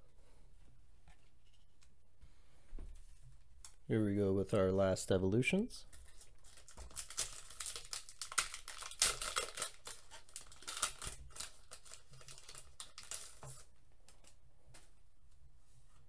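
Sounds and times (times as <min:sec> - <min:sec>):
foil wrapper tearing and crinkling: 0:05.9 - 0:14.2.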